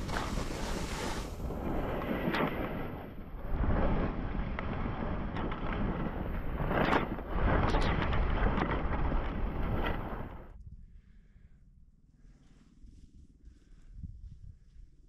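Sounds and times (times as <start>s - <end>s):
skis scraping on snow: 0.0s - 10.5s
wind buffeting microphone: 13.7s - 14.9s.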